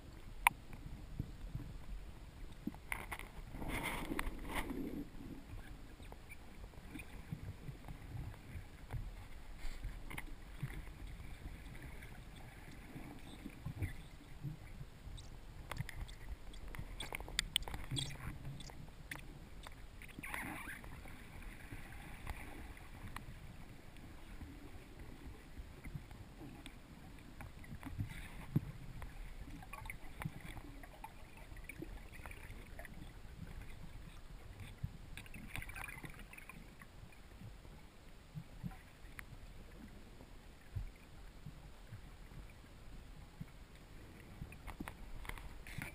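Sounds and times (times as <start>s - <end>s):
faint clicks: 0.1s - 4.9s, 5.5s - 21.5s, 22.1s - 23.3s, 38.4s - 39.9s, 43.4s - 45.9s.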